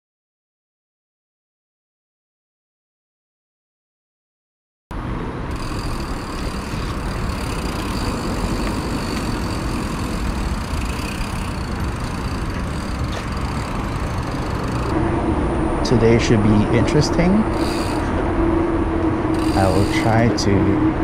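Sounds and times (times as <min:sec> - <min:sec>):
bicycle running noise: 0:05.5 - 0:15.1, 0:16.3 - 0:20.6.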